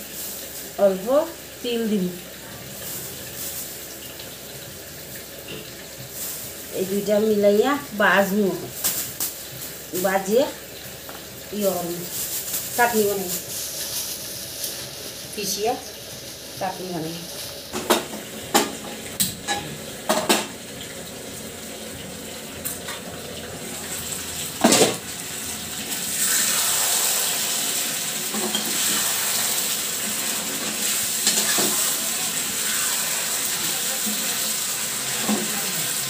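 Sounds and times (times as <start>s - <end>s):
frying pan knocking on stove: 17.7s - 20.6s.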